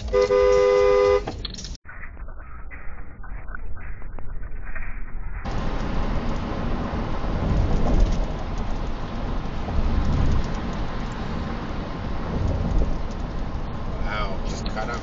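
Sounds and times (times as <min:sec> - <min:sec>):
car rumble and hiss: 0:05.4 - 0:15.0.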